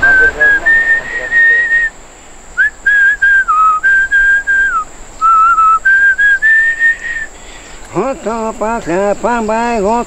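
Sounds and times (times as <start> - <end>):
person whistling: 0.0 - 1.9, 2.6 - 7.3.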